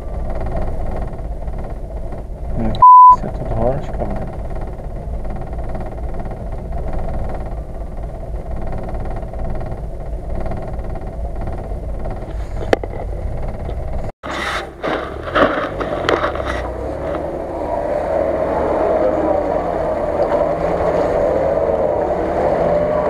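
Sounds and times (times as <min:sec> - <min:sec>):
off-road vehicle engine running: 0:00.0 - 0:23.0
knocks and scrapes: 0:08.5 - 0:17.4.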